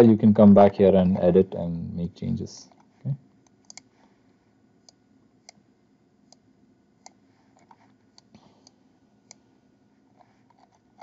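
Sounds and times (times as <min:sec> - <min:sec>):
computer mouse clicks: 0:02.7 - 0:03.9, 0:04.8 - 0:05.6, 0:07.0 - 0:09.4.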